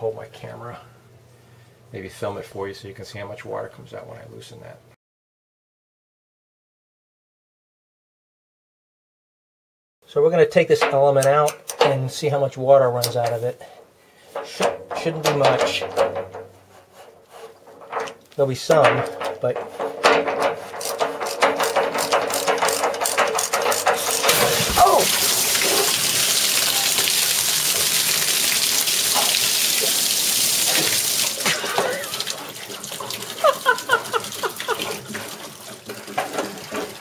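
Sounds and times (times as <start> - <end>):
wrench clicking: 20.8 - 24.4
water gushing with a hiss: 24.0 - 37.0.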